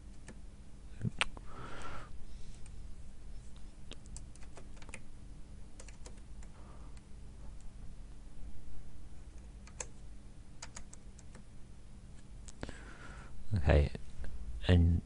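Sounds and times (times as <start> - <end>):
low steady hum: 0.0 - 15.0
keyboard keys clicking: 4.0 - 5.0, 5.8 - 6.5, 9.6 - 10.0, 10.6 - 11.5.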